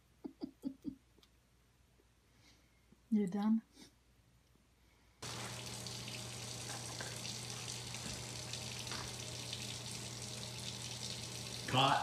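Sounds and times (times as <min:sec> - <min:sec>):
steady hiss: 0:05.2 - 0:12.0.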